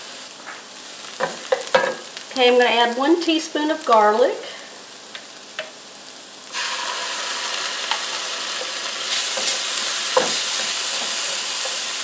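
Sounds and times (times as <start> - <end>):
vegetables sizzling in butter: 0.0 - 12.0.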